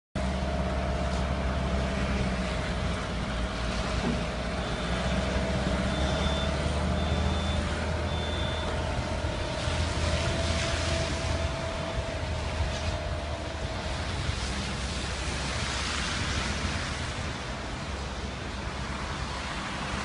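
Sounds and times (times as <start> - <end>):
loader engine running: 0.2 - 19.2
reversing alarm beeping: 4.5 - 9.6.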